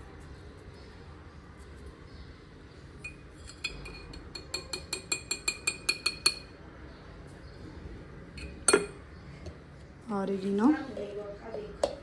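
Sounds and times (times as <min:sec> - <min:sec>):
spoon clinking against vessel: 0:03.0 - 0:06.6, 0:08.4 - 0:09.0.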